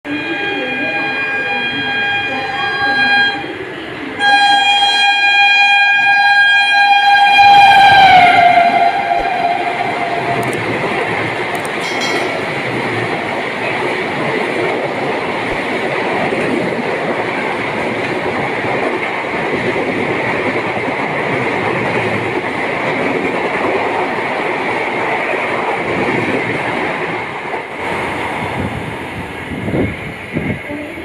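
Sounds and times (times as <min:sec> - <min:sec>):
train wheels rushing on rail: 0:05.9 - 0:31.0
clatter over rail joints: 0:10.4 - 0:14.7.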